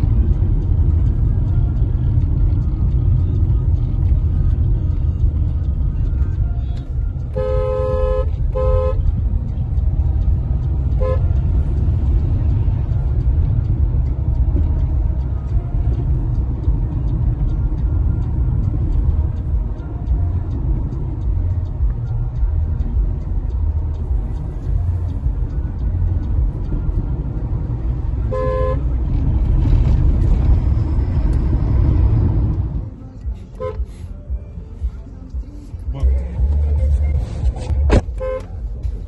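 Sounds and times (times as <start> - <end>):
engine and road noise in car: 0.0 - 39.0
car horn toots: 7.2 - 9.2, 10.9 - 11.4, 28.2 - 28.9, 33.6 - 33.9, 37.9 - 38.6.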